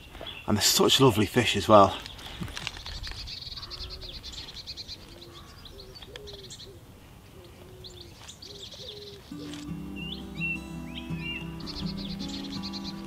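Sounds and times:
small birds chirping and trilling: 0.0 - 13.0
pigeon cooing: 5.2 - 13.0.

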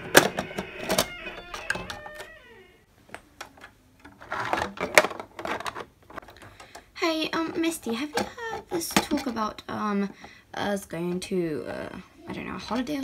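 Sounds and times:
plastic toy doors clicking: 0.0 - 2.4.

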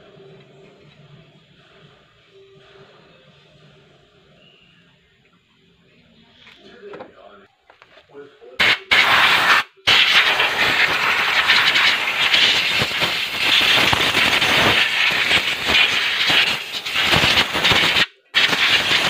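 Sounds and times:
compressed air hissing: 8.6 - 19.0.

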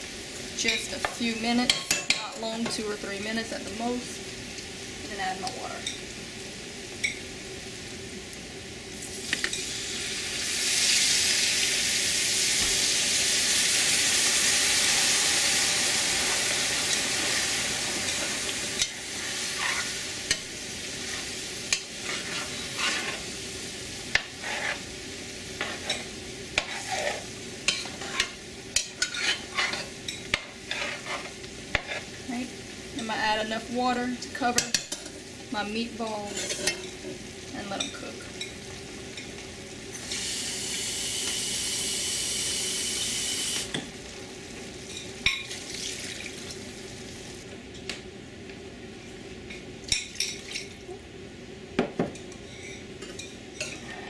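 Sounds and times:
hissing sizzle in pot: 0.0 - 54.0
metal spoon scraping pot: 29.0 - 29.9.

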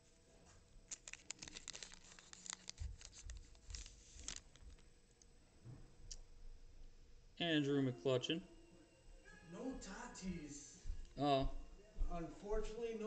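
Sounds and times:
foil wrapper tearing and crinkling: 0.9 - 4.8.

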